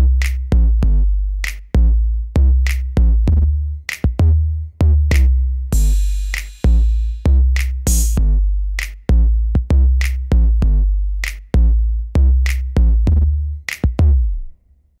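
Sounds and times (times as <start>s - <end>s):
electronic drum machine beat: 5.1s - 11.7s.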